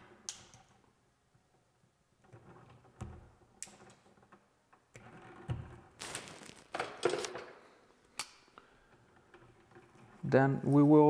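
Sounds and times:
wire insulation scraping: 4.9 - 7.4.

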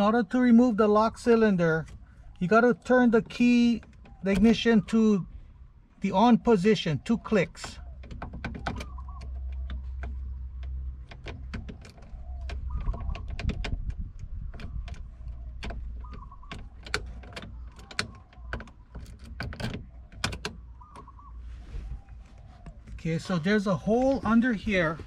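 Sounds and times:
key clicking in ignition lock: 7.5 - 21.2.

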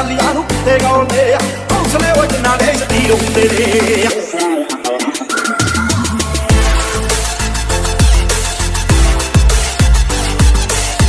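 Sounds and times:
electronic music beat: 1.8 - 11.0
deep sliding bass: 5.7 - 10.2.

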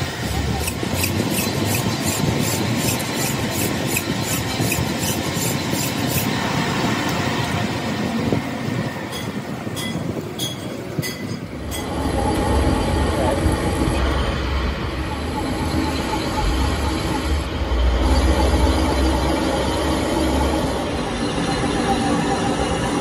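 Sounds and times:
metalworking machine screeching: 11.8 - 23.0.

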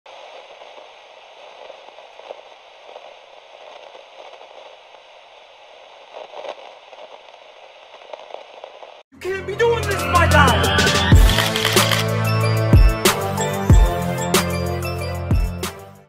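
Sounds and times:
crackly static hiss: 0.1 - 9.0.

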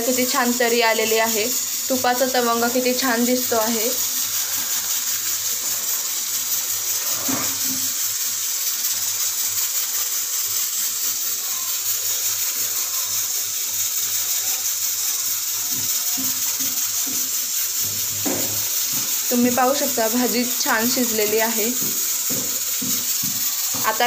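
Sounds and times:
curry sizzling in a pan: 0.0 - 24.0
spatula knocking against a pan: 16.2 - 19.1, 21.8 - 23.8.

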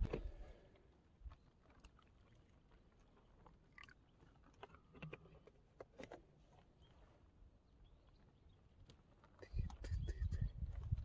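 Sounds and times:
faint clicks and crunches: 0.0 - 7.0.

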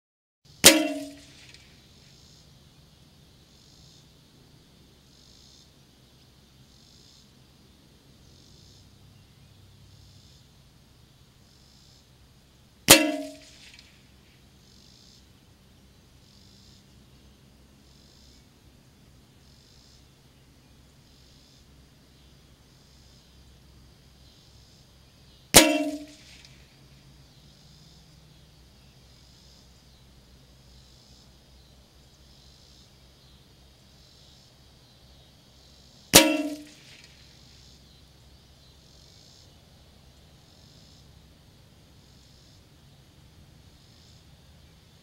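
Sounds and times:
insect chorus buzzing: 0.5 - 45.0
rifle shot crack: 0.6 - 1.6, 12.9 - 13.9, 25.6 - 26.5, 36.2 - 37.2
short metallic ring: 0.6 - 1.6, 12.9 - 13.9, 25.6 - 26.6, 36.2 - 37.1
low steady hum: 34.5 - 38.9.

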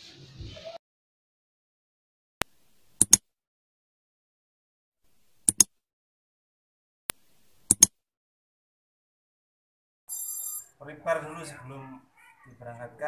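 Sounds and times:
mouse clicks: 2.4 - 3.2, 5.4 - 5.7, 7.1 - 7.9.

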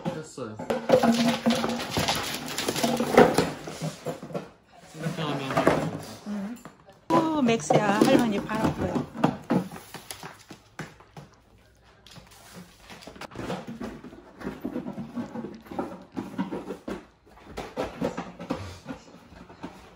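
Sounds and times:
claws clicking on hardwood floor: 8.0 - 13.4.

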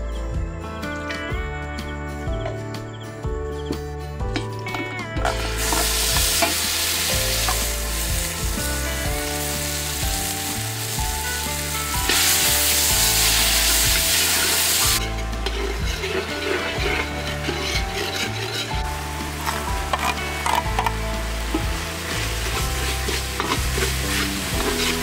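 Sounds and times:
background music: 0.0 - 25.0
paste sizzling in hot oil: 5.3 - 25.0
ladle stirring in pot: 11.3 - 25.0.

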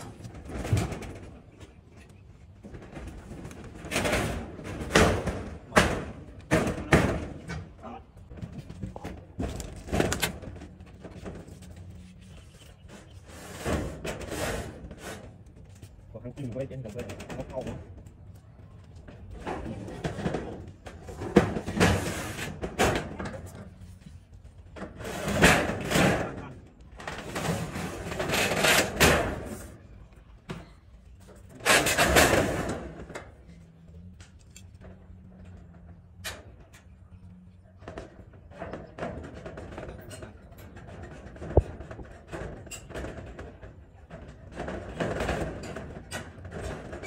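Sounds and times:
metal roof sheets rattling: 2.6 - 15.4, 19.0 - 23.9, 24.7 - 29.8, 30.6 - 33.4, 37.8 - 47.0.

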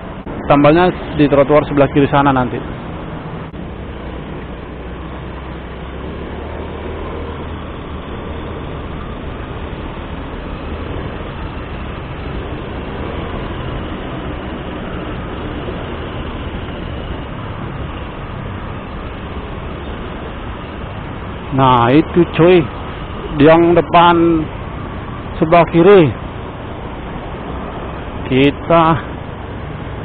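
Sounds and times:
road noise: 0.0 - 30.0
scooter engine humming: 2.4 - 23.7.

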